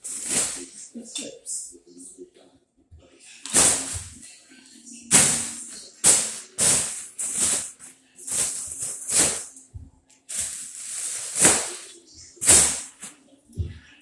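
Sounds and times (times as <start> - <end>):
foil balloon crinkling: 5.1 - 9.6, 10.3 - 13.1.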